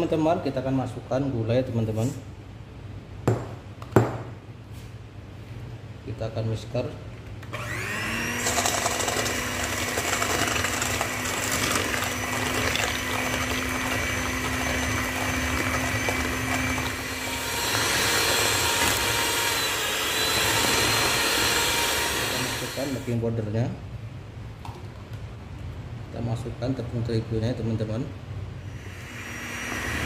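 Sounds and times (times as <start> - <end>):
electric hand mixer humming: 7.5 - 23.2, 28.8 - 30.0
beaters whisking in a metal bowl: 7.8 - 23.0.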